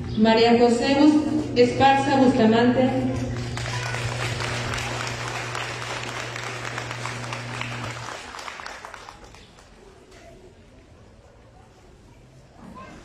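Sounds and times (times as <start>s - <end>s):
steady low hum: 0.9s - 8.1s
audience applauding: 3.2s - 10.0s.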